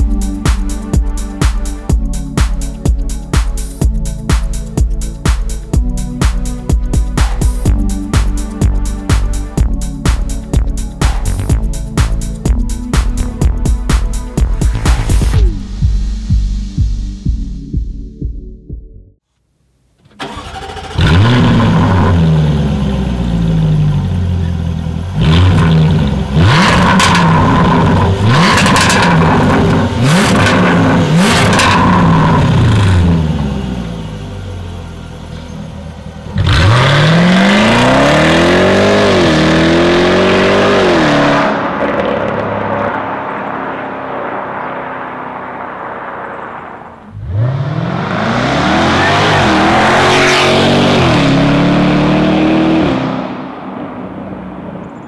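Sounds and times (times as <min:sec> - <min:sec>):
car engine revving and idling: 0:20.2 - 0:55.0
exhaust cracks: 0:25.3 - 0:33.4, 0:41.5 - 0:49.6.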